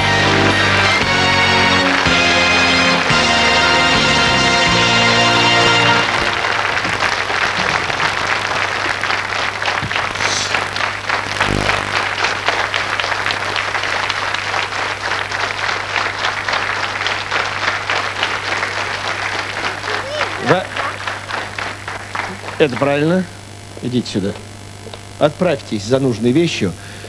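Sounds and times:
audience applauding: 0.0s - 23.2s
low steady hum: 6.0s - 13.5s.

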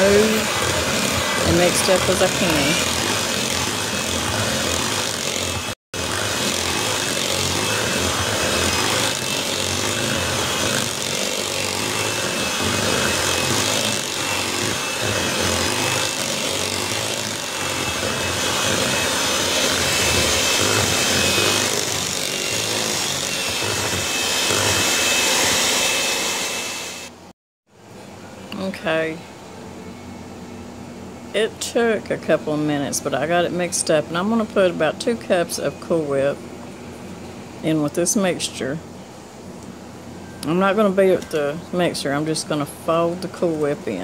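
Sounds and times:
electric hand mixer whipping: 0.0s - 27.3s.

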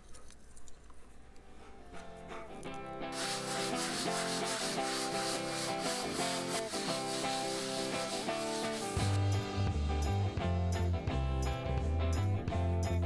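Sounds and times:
background music: 1.4s - 13.0s
sanding block rubbing drywall: 3.1s - 9.4s.

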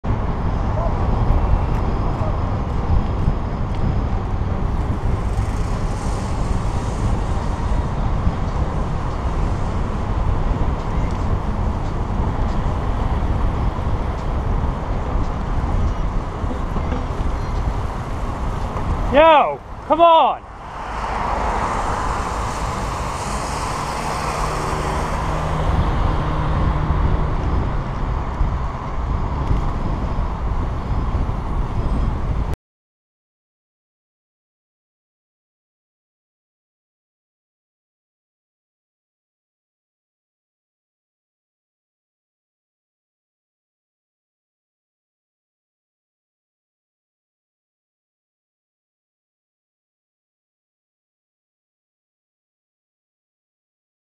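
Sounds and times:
road traffic: 0.0s - 32.6s
wind buffeting microphone: 0.1s - 19.9s, 20.5s - 32.6s
cars passing: 0.1s - 32.5s
bicycle tyre noise: 3.2s - 26.7s.

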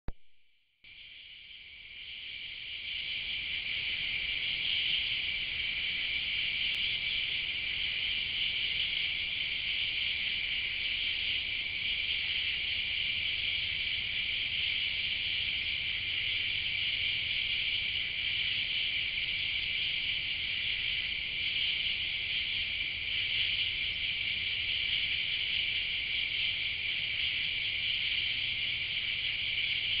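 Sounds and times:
chorus of night insects: 0.8s - 30.0s.

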